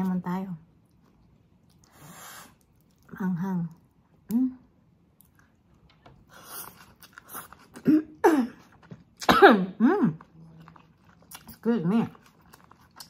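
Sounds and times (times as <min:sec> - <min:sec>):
woman speaking: 0:00.0 - 0:00.7, 0:03.1 - 0:04.6, 0:11.5 - 0:12.2
chewing and crunching: 0:00.0 - 0:04.0, 0:05.1 - 0:09.3, 0:10.1 - 0:13.0
woman coughing: 0:07.8 - 0:08.6, 0:09.2 - 0:10.1.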